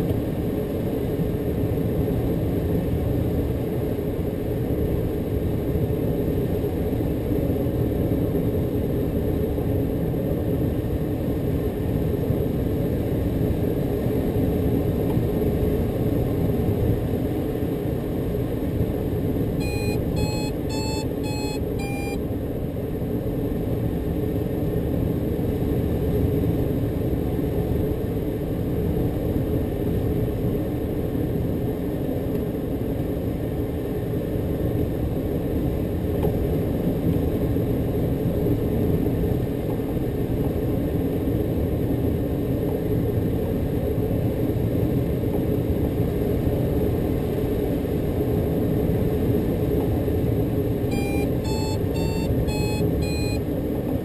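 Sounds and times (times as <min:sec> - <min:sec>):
light aircraft cockpit drone: 0:00.0 - 0:54.0
short electronic beeps: 0:19.6 - 0:22.2, 0:50.9 - 0:53.4.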